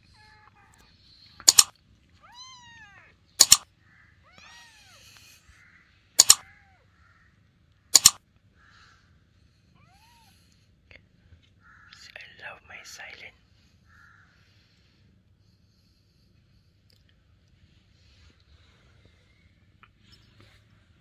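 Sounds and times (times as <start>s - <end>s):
kittens mewing: 0.0s - 5.6s, 6.2s - 7.0s
mouse-click sound effects: 1.4s - 1.7s, 3.4s - 3.6s, 6.2s - 6.4s, 8.0s - 8.2s.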